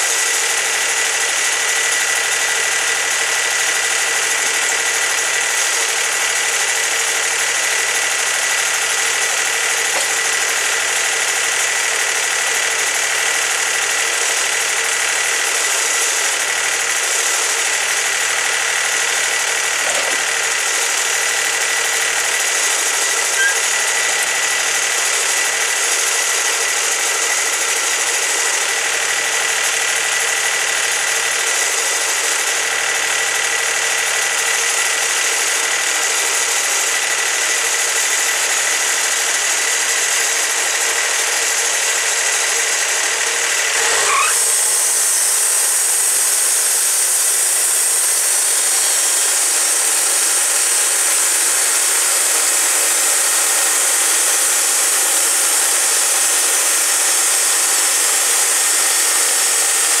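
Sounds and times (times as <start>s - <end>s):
sawmill engine running: 0.0s - 60.0s
band saw blade hissing: 9.9s - 10.5s, 23.3s - 23.8s, 43.5s - 45.9s.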